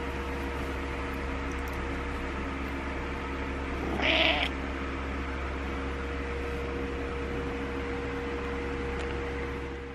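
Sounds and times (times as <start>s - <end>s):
cat meowing: 3.8s - 4.5s.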